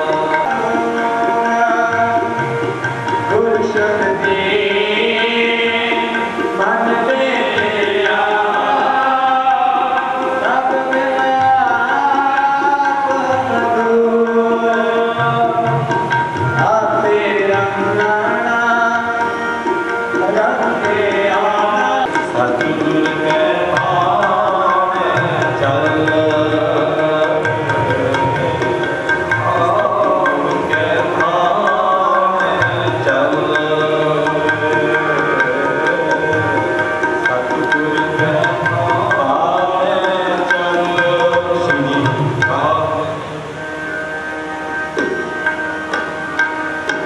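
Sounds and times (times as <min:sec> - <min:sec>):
harmoniums playing held chords: 0:00.0 - 0:47.0
person singing melody: 0:00.0 - 0:47.0
tabla drumming: 0:00.0 - 0:47.0.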